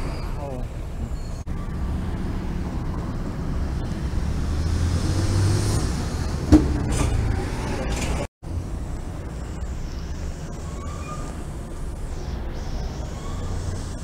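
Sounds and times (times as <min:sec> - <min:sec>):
bus engine passing on wet street: 0:01.8 - 0:08.0.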